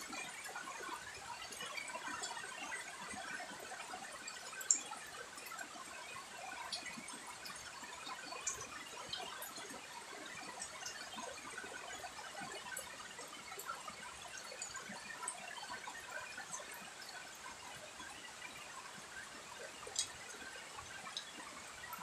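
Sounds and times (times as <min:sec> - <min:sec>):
steady rain falling: 0:00.0 - 0:22.0
louder water drips: 0:19.9 - 0:20.3.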